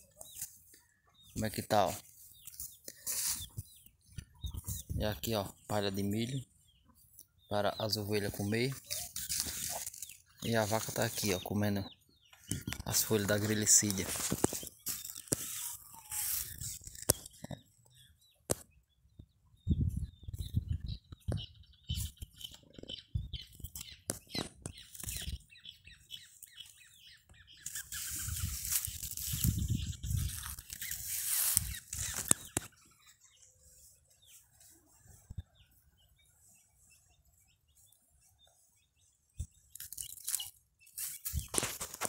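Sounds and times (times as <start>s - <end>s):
crackling and tearing foliage: 8.8s - 10.9s, 13.4s - 17.4s, 27.6s - 32.6s, 39.7s - 42.0s
loud leaf rustling: 27.6s - 32.5s.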